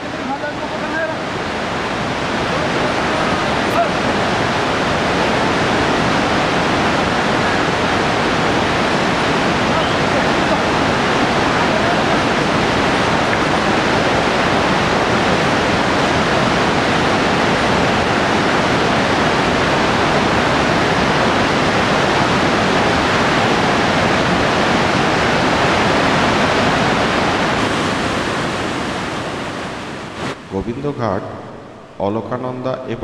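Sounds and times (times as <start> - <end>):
river rushing over boulders: 0.0 - 30.5.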